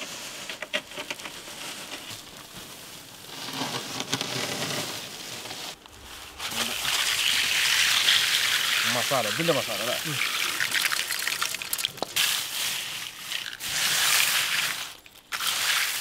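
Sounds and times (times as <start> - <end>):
fried snack crackling: 6.5 - 16.0.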